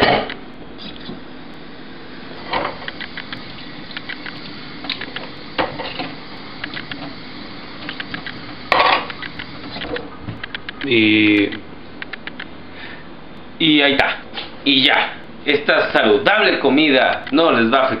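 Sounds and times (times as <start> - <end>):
dishes clinking against sink: 8.7 - 9.1.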